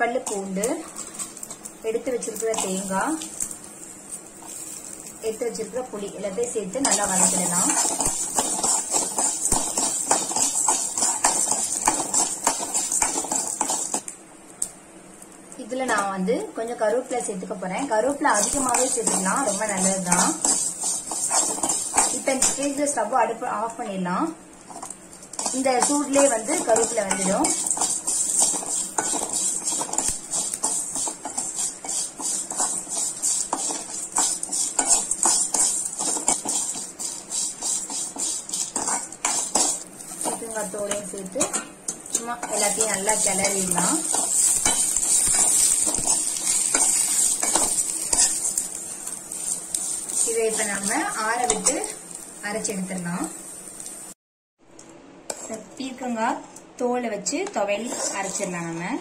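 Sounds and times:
hot oil sizzling: 0.0s - 54.2s, 57.2s - 59.0s
spoon scraping a pan: 6.5s - 14.1s, 18.3s - 23.0s, 24.7s - 52.8s, 55.3s - 55.7s, 57.4s - 59.0s.

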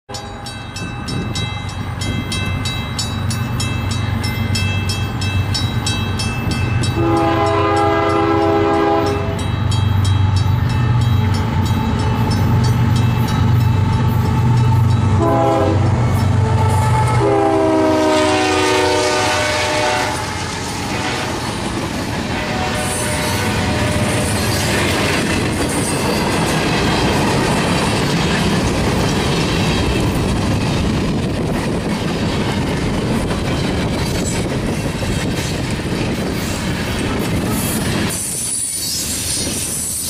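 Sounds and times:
crossing bell ringing: 0.1s - 21.6s, 22.2s - 30.4s
diesel train engines rumbling: 0.1s - 40.0s
locomotive air horn blasts: 6.9s - 9.4s, 15.2s - 21.5s, 22.3s - 24.4s.

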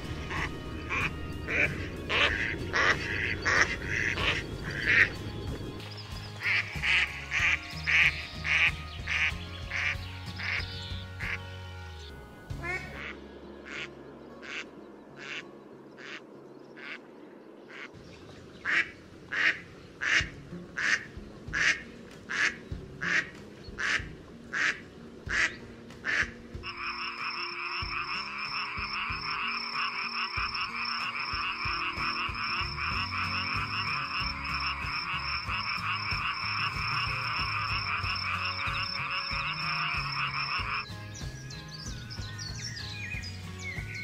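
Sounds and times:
duck quacking: 0.2s - 5.2s, 12.6s - 15.4s, 18.7s - 40.8s.

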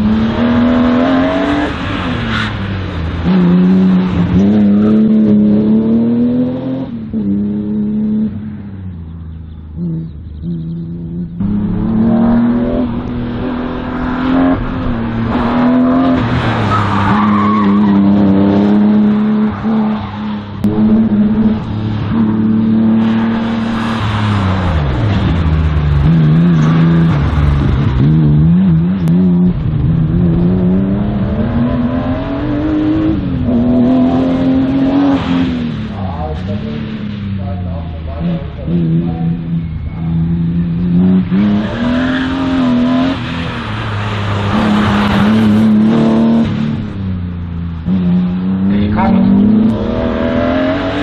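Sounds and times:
race car engine revving: 0.0s - 8.4s, 9.7s - 51.0s
tyre squeal: 16.6s - 18.2s.

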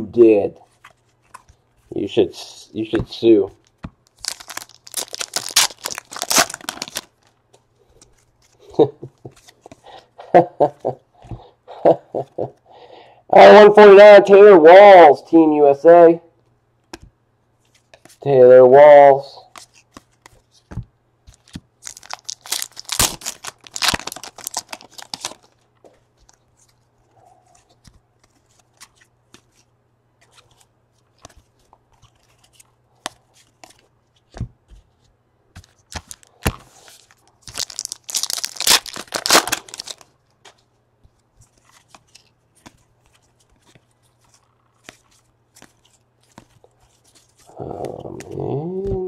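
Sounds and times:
card pack wrappers tearing and crinkling: 4.0s - 7.3s, 21.3s - 25.6s, 35.9s - 40.1s.

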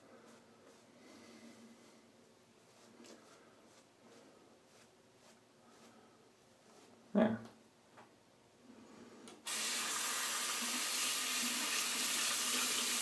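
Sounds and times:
water running into basin: 9.5s - 13.0s.

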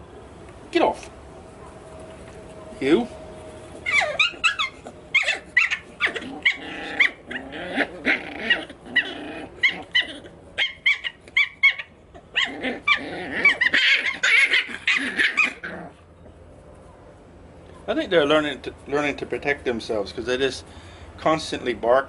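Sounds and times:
puppies yapping: 3.7s - 18.0s.

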